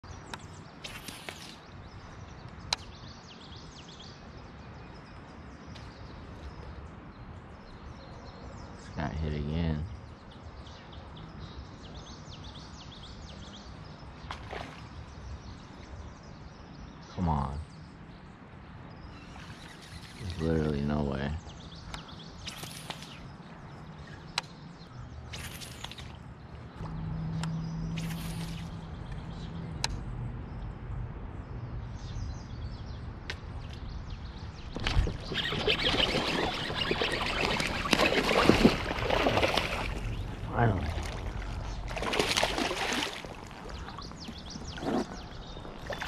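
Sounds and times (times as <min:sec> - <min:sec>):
birds chirping: 0:00.0 - 0:46.0
low outdoor background noise: 0:00.0 - 0:46.0
faint bird chirps: 0:18.9 - 0:29.8, 0:33.8 - 0:42.2.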